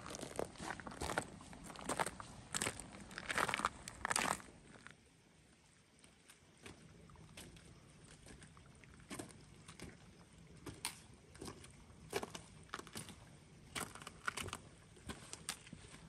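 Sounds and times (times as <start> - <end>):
boots crunching on stones: 0.0 - 4.9.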